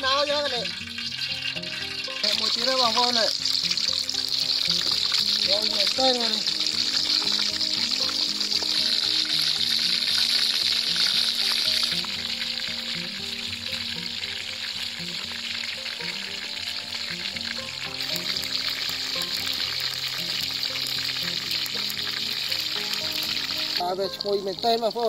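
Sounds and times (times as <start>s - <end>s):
light background music: 0.0s - 25.0s
oil sizzling and bubbling: 0.0s - 25.0s.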